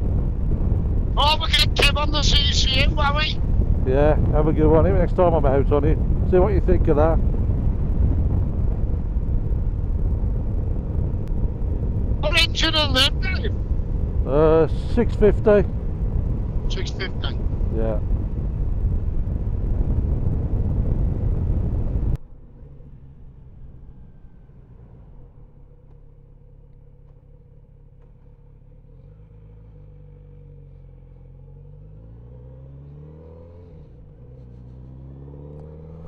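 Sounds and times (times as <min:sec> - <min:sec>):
motorcycle engine revving: 0:22.4 - 0:36.0.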